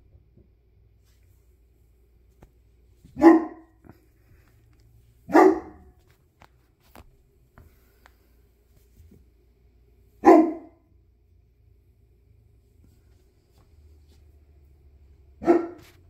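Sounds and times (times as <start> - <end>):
dog barking: 3.2 - 3.8, 5.3 - 6.0, 10.2 - 10.8, 15.4 - 16.0.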